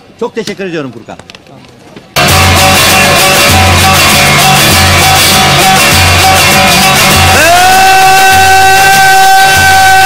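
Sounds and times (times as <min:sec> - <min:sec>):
rock background music: 0:02.2 - 0:07.6.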